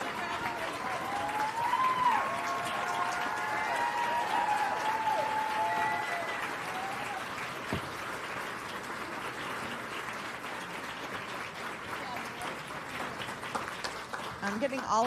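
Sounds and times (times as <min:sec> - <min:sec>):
voices cheering: 0:00.0 - 0:07.6
audience applauding: 0:00.0 - 0:15.0.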